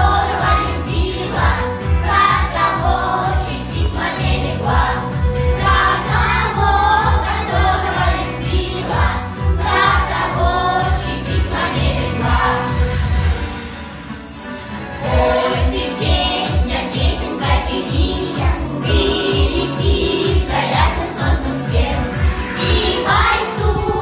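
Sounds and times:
children's and women's choir singing: 0.0s - 13.0s, 15.0s - 24.0s
backing track with steady beat: 15.0s - 24.0s.

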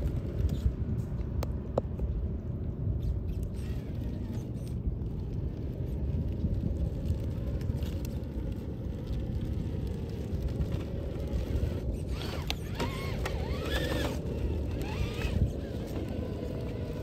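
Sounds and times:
rc car grinding over rocks: 7.0s - 17.0s
electric motor whine: 10.7s - 17.0s.

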